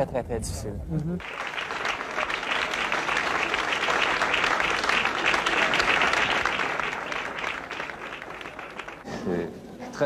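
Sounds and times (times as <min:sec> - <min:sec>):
crowd applauding: 0:01.2 - 0:09.1.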